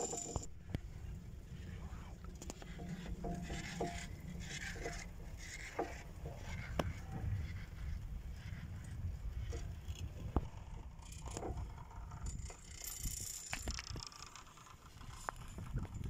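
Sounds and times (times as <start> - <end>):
clicks and creaks of chairlift: 0.0 - 16.0.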